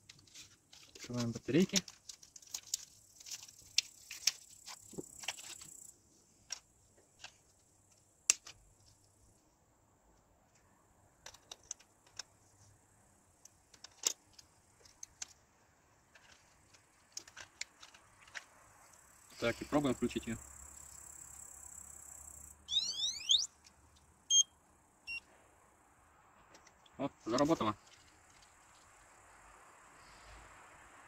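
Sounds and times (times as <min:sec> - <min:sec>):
plastic clicks of batteries loading: 0:06.4 - 0:08.6, 0:11.2 - 0:12.3, 0:13.4 - 0:15.4, 0:16.1 - 0:18.5.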